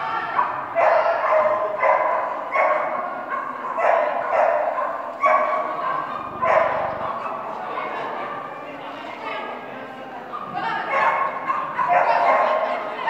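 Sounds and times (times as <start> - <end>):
dog barking: 0.3 - 7.9, 10.3 - 12.9.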